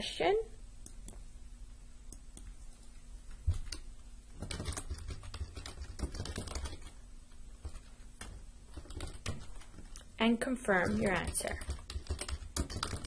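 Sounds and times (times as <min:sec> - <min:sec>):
keyboard typing: 0:04.4 - 0:07.0, 0:07.7 - 0:10.0, 0:10.6 - 0:13.0.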